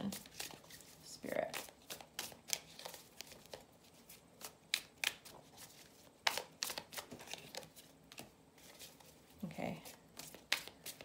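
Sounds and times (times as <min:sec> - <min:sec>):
cards being shuffled: 0:00.0 - 0:11.0.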